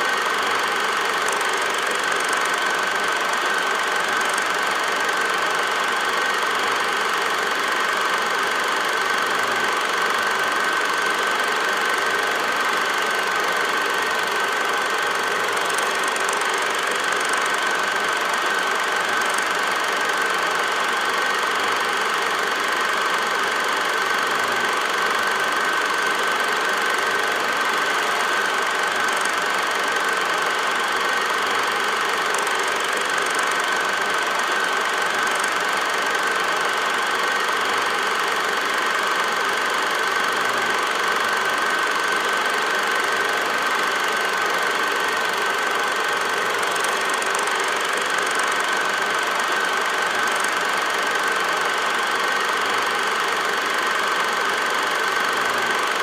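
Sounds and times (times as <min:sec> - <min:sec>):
film projector whirring: 0:00.0 - 0:56.0.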